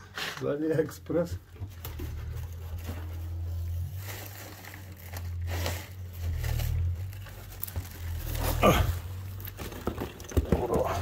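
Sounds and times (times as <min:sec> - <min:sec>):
rustling handling noise: 0:00.0 - 0:11.0
soft scrapes: 0:02.3 - 0:09.2.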